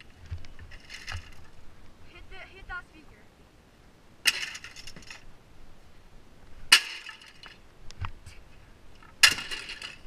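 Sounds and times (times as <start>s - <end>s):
breaking plastic clattering: 9.2s - 10.0s.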